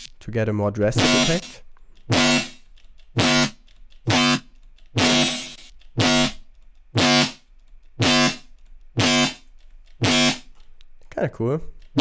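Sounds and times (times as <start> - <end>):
distorted synth bass note: 0.9 - 2.6, 3.2 - 4.4, 5.0 - 6.4, 7.0 - 7.4, 8.0 - 8.4, 9.0 - 9.4, 10.0 - 10.5.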